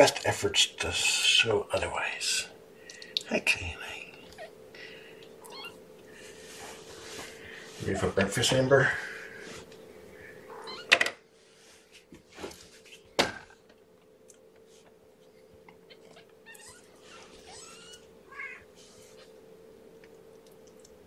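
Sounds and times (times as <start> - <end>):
faint steady hum: 0.0 - 21.0
kittens mewing: 5.4 - 5.9, 15.8 - 18.7.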